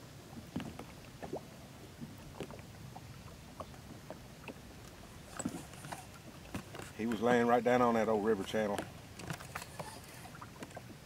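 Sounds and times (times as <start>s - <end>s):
water lapping against boat: 0.0s - 11.0s
soft ticks and drips: 0.2s - 11.0s.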